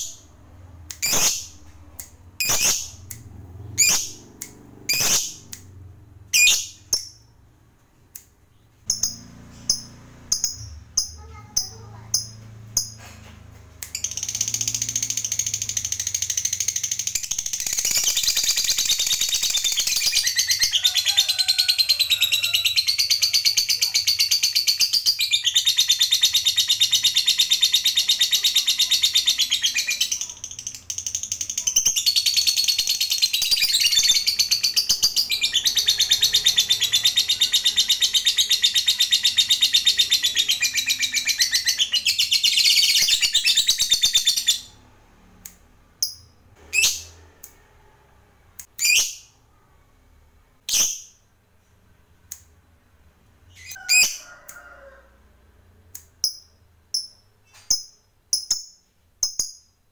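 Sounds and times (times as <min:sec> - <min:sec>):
lovebird shrieking and chattering: 0:00.9 - 0:01.6, 0:02.4 - 0:03.1, 0:03.8 - 0:04.2, 0:04.9 - 0:05.5.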